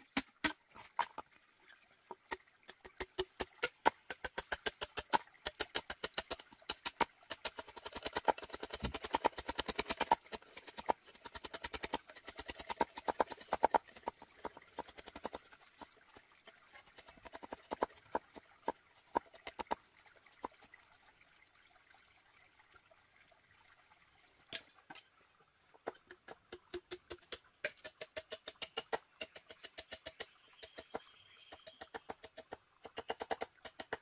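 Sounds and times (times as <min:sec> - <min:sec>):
machete chopping bamboo: 0:00.0 - 0:01.2, 0:26.5 - 0:30.3.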